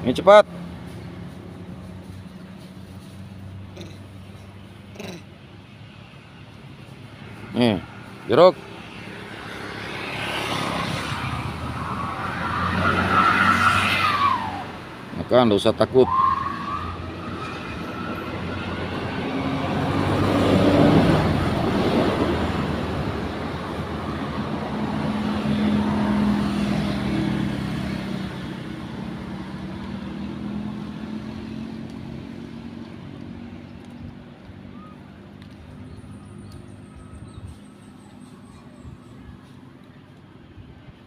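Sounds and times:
vehicle passing by: 0.0 - 41.0.

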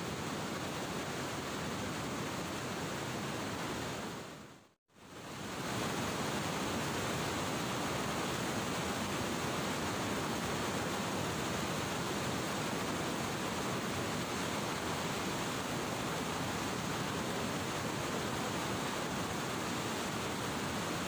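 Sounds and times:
turbulent floodwater rushing: 5.2 - 21.0.

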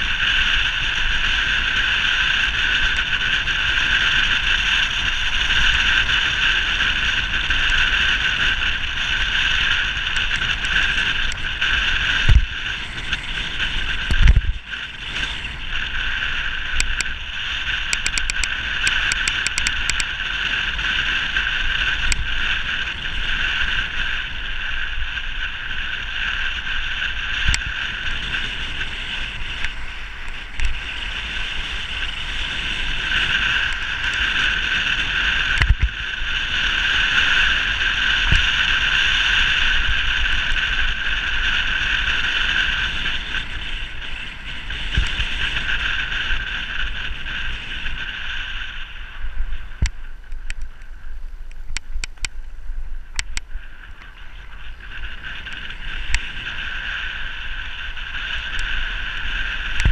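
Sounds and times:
wind and road noise rushing: 0.0 - 59.9
sharp clicks: 16.8 - 17.1, 17.9 - 20.1.

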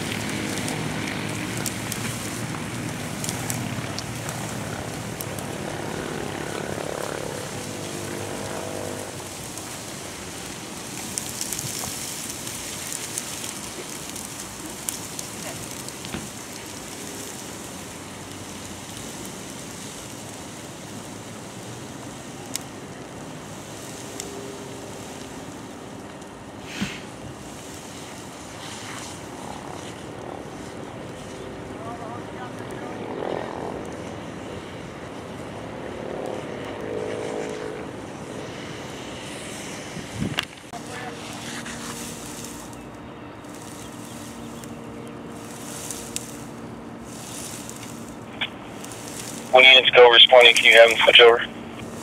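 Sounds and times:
fire hose spraying water: 0.0 - 52.0
motor running: 3.6 - 9.2.

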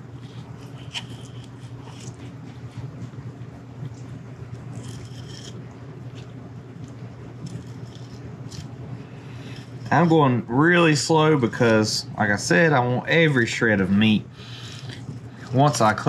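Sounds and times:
steady low hum: 0.0 - 16.0
knife scraping through fish: 4.8 - 5.6.

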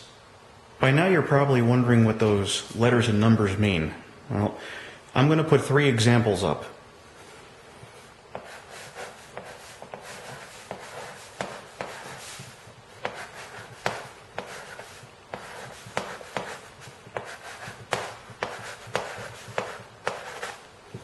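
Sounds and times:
chalk scratching: 7.9 - 21.0
chalk tapping on chalkboard: 8.3 - 21.0.

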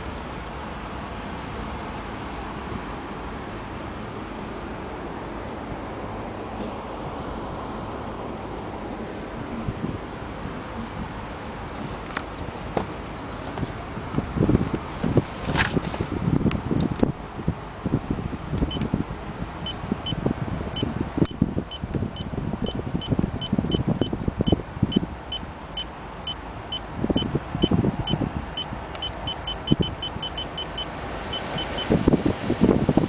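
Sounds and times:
low cabin rumble: 0.0 - 33.0
short high beeps: 24.5 - 31.9.

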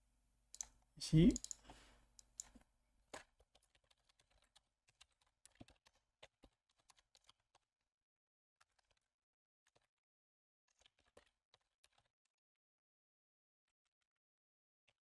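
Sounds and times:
keyboard typing: 1.3 - 2.6, 3.2 - 7.6.

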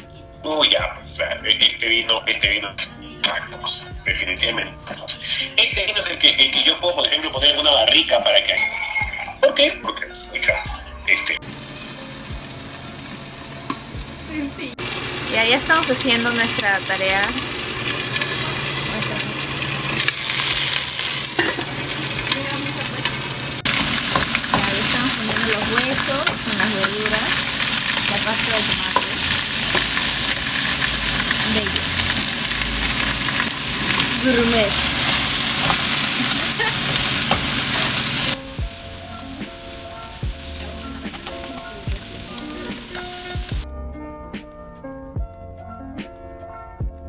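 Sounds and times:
background music with held notes: 0.0 - 47.0
food sizzling in a pot: 11.2 - 43.7
metal tongs stirring: 15.7 - 38.4.

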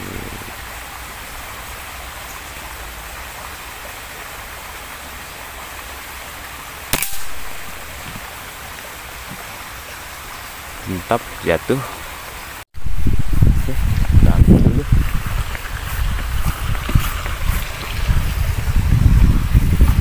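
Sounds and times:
outdoor hiss: 0.0 - 19.1
air rifle shot: 6.9 - 7.9.

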